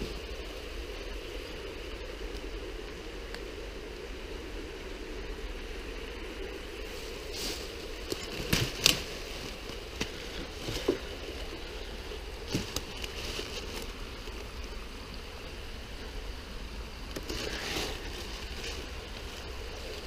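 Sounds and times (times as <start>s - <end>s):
leaves and twigs rustling: 0.0s - 20.0s
low background noise: 0.0s - 20.0s
twigs cracking: 7.6s - 14.7s, 17.0s - 20.0s.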